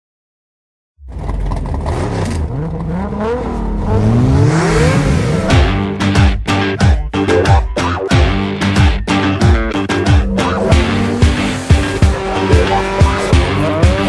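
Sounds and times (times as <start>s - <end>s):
car engine revving: 1.0s - 6.2s, 9.5s - 14.0s
pop song with drums bass guitar: 5.5s - 14.0s.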